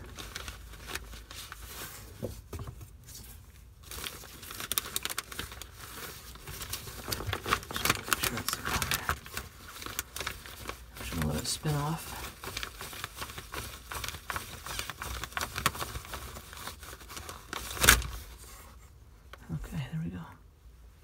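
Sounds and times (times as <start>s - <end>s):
plastic bag crinkling: 3.7s - 18.5s.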